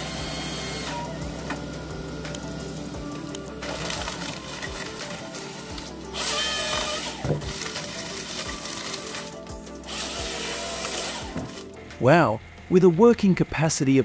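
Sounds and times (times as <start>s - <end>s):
background music: 0.0s - 14.0s
excavator engine running: 0.0s - 14.0s
chain saw cutting a log: 3.6s - 11.7s.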